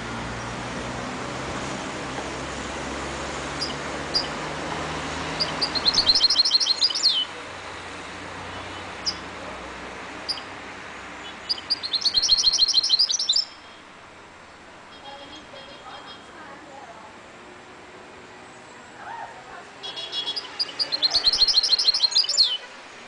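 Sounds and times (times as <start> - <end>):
bird singing fast high notes: 5.3 - 7.3, 11.4 - 13.8, 19.8 - 22.7
single bird chirps: 5.4 - 7.2, 11.2 - 13.8, 19.9 - 22.6.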